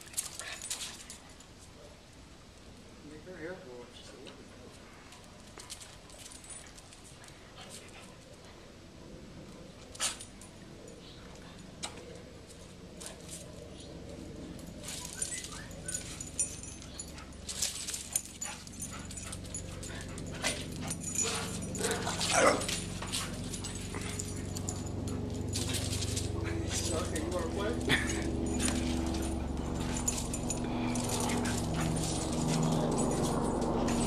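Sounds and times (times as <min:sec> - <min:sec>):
dogs scuffling: 0:11.3 - 0:34.0
dogs yipping: 0:13.0 - 0:34.0
dog whining: 0:20.4 - 0:22.8.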